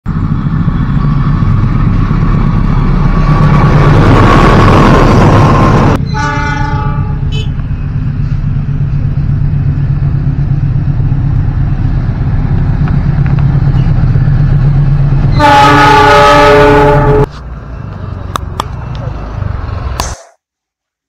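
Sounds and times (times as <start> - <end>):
diesel locomotive engine drone: 0.0 - 20.3
locomotive horn blast: 6.0 - 7.6, 15.3 - 17.3.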